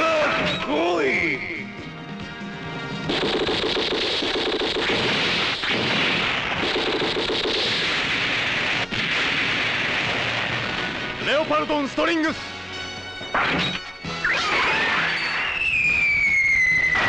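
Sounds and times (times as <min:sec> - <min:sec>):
rapid explosions: 0:03.0 - 0:12.5.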